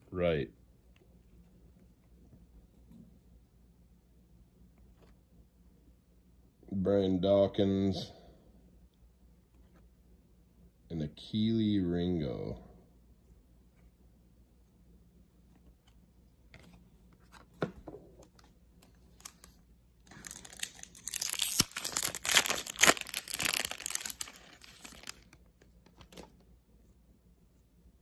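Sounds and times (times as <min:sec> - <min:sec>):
foil wrapper tearing and crinkling: 0:19.2 - 0:25.4.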